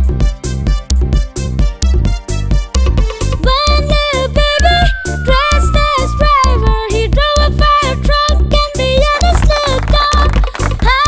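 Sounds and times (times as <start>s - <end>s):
upbeat children's song: 3.1s - 11.0s
person singing: 3.5s - 10.2s.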